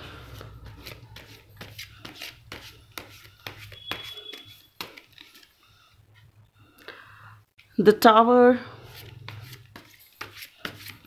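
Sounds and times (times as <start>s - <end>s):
cards clicking and rubbing: 0.2s - 5.6s, 9.0s - 11.0s.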